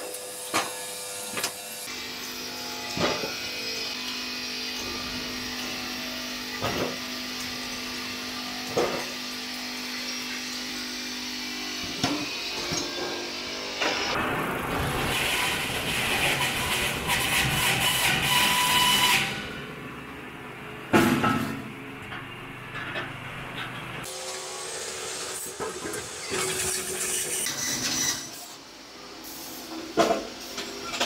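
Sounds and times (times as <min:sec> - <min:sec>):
steady machine hum: 0:13.3 - 0:25.3.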